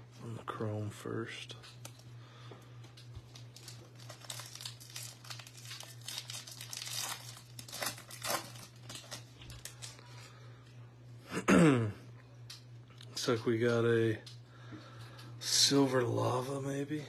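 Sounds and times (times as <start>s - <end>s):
foil wrapper crinkling and tearing: 3.0s - 10.4s.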